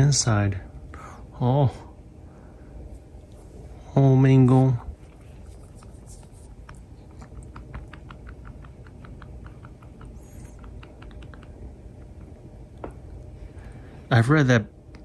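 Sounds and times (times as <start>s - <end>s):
puppy licking and chewing: 4.9s - 13.4s.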